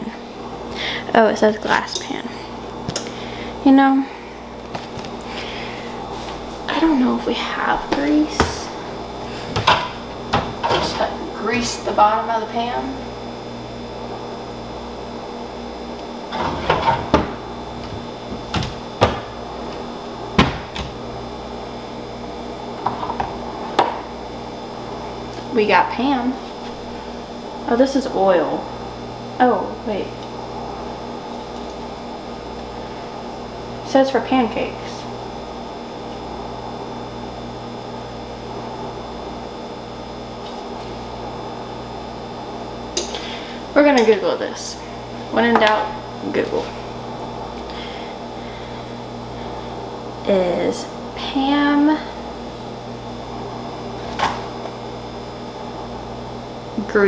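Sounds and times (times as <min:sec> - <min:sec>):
appliance humming with faint hiss: 0:00.0 - 0:57.0
cabinet doors knocking and clunking: 0:20.4 - 0:20.9.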